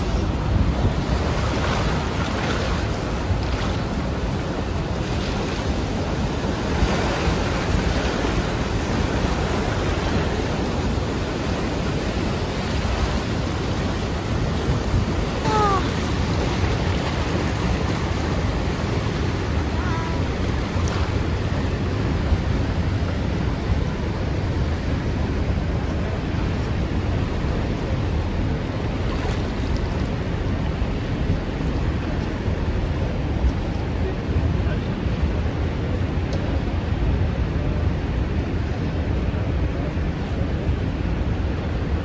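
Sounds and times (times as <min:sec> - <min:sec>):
white water rushing: 0:00.0 - 0:42.0.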